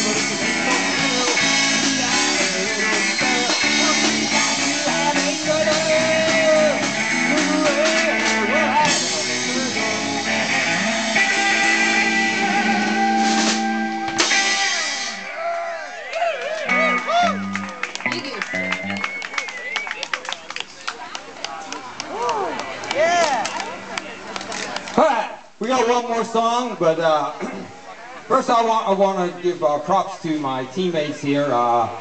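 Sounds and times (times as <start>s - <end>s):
person singing: 0.0s - 13.8s
drum kit: 0.0s - 15.3s
electric guitar: 0.0s - 15.3s, 16.5s - 19.4s
bass guitar: 0.0s - 19.4s.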